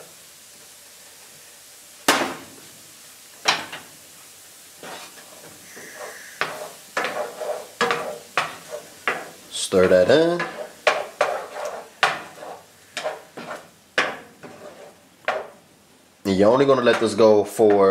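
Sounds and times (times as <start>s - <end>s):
faint sizzle: 0.0s - 17.9s
wooden spoon scraping a pan: 4.8s - 15.7s, 16.3s - 17.9s
butter cubes knocking into pan: 6.4s - 14.6s.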